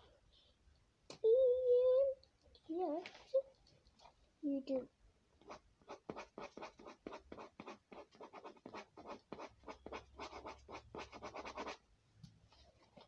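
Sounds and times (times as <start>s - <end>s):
marker scribbling on paper: 5.4s - 11.8s.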